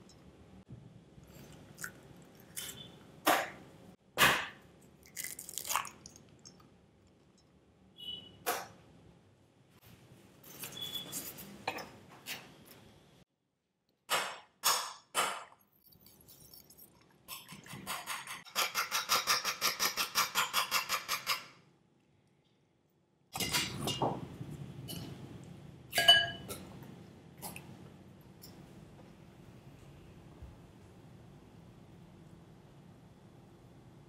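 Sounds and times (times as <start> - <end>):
ringing clink on glass: 26.0 - 26.5.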